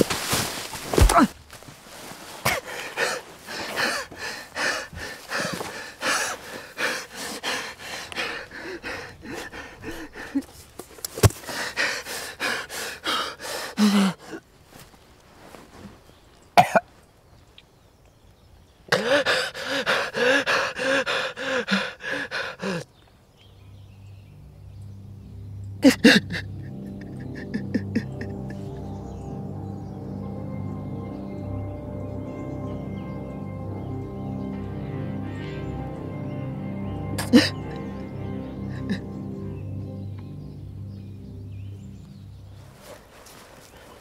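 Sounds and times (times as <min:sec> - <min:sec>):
person coughing and gasping: 0:02.4 - 0:04.1, 0:16.6 - 0:16.9, 0:25.8 - 0:28.6, 0:37.2 - 0:37.7.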